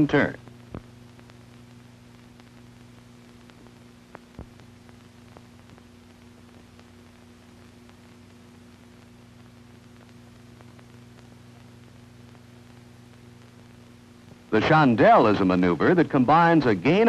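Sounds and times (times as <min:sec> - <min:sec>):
faint electrical hum: 0:00.0 - 0:17.0
clicks and pops: 0:00.6 - 0:01.4.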